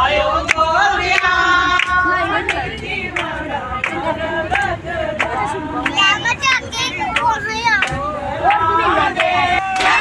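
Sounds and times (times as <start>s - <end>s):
group singing devotional song: 0.0s - 6.3s, 7.8s - 10.0s
hand-clapping: 7.2s - 8.6s, 9.2s - 10.0s.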